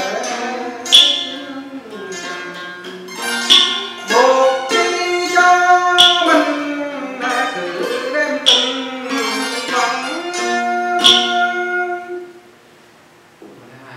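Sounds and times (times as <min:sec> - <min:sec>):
plucked lute and zither: 0:00.0 - 0:12.4
sharp click on the beat: 0:00.9 - 0:01.5, 0:03.4 - 0:04.2, 0:06.0 - 0:06.4, 0:08.4 - 0:09.0, 0:11.0 - 0:11.6.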